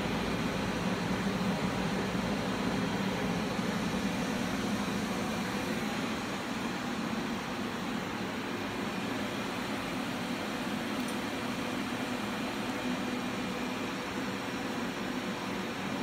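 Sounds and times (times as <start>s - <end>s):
cooling equipment whirring hum: 0.0s - 16.0s.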